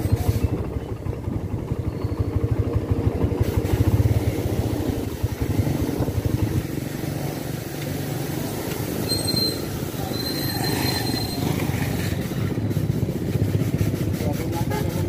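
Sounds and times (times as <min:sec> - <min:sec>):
high squeal: 0:01.8 - 0:02.6, 0:09.0 - 0:12.7
motorcycles passing: 0:02.4 - 0:15.0.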